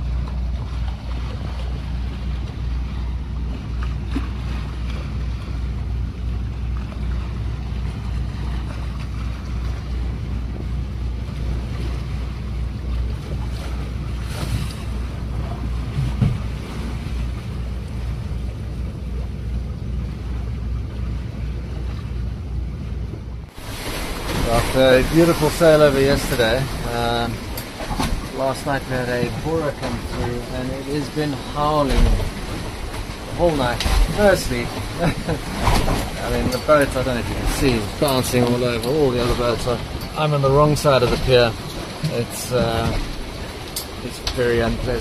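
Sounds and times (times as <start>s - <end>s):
hull thump on wake: 0.0s - 45.0s
water rushing past boat hull: 0.0s - 45.0s.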